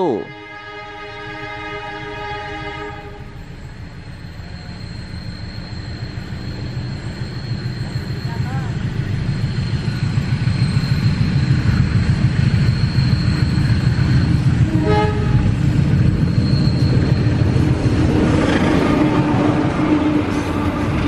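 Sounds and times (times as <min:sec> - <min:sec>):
train horn toot: 0:00.0 - 0:03.5, 0:14.6 - 0:21.0
locomotive passing: 0:01.2 - 0:21.0.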